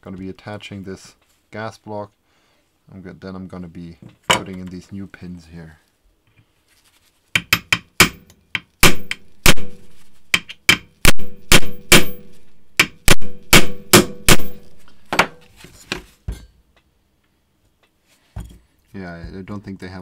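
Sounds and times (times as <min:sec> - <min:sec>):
hammer striking metal punch: 0:07.4 - 0:15.4.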